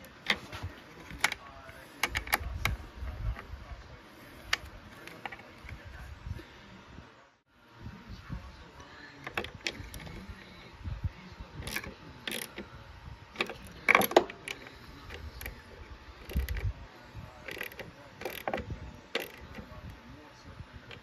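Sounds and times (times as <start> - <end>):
socket ratchet clicking: 11.6 - 12.6, 17.5 - 19.6.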